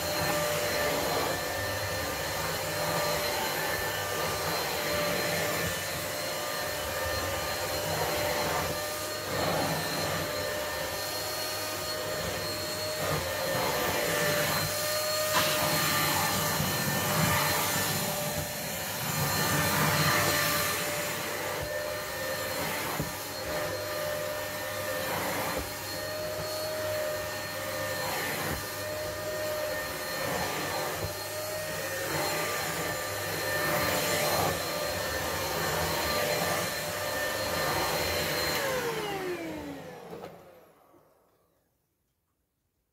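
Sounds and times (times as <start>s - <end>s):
vacuum cleaner running: 0.0s - 41.6s.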